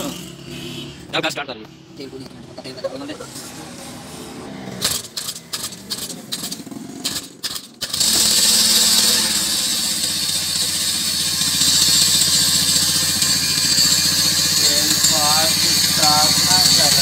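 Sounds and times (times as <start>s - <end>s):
two-stroke engine running: 3.7s - 17.0s
pull-start knocks and clicks: 4.8s - 17.0s.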